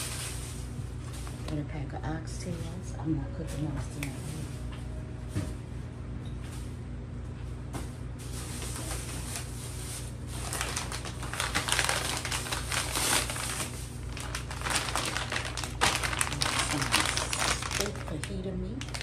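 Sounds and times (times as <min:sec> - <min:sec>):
plastic bags crinkling: 0:00.0 - 0:01.5, 0:08.2 - 0:19.0
steady low hum: 0:00.0 - 0:19.0.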